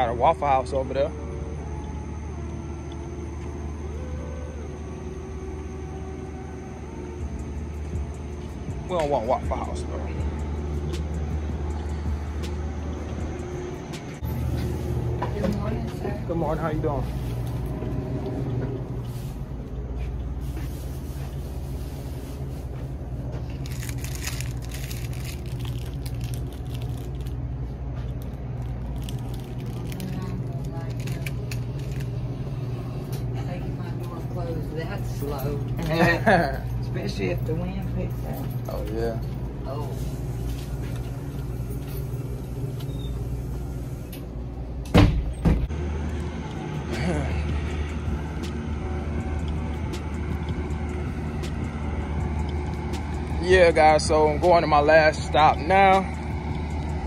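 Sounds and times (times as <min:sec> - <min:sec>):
low hum: 0:00.0 - 0:57.0
crinkling and rustling: 0:20.4 - 0:32.2.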